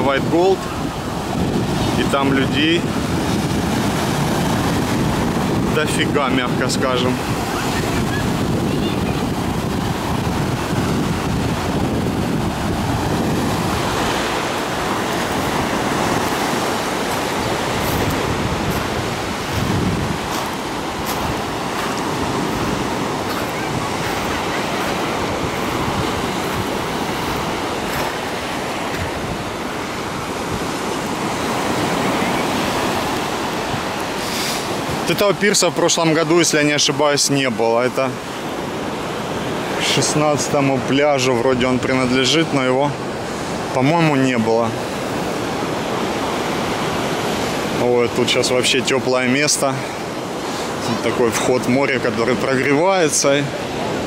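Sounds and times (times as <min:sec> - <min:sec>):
wind buffeting microphone: 0:00.0 - 0:35.2
sea waves breaking on beach: 0:00.0 - 0:54.0.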